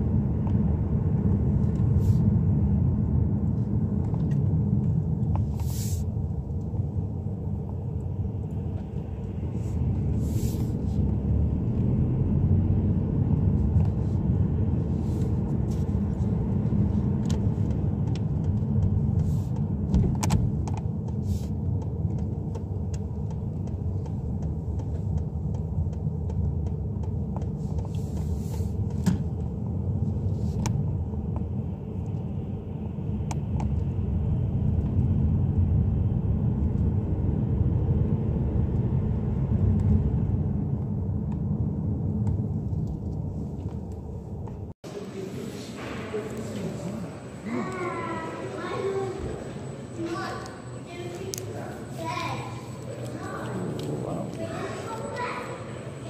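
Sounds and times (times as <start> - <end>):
car engine and tyres rumbling: 0.0 - 45.0, 45.8 - 56.0
faint clicks and taps: 17.2 - 29.5.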